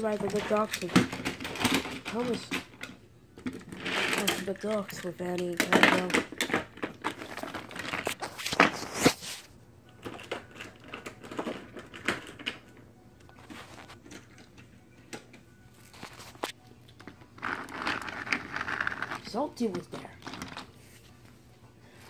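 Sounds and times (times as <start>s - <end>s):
phone being handled: 13.2s - 17.7s.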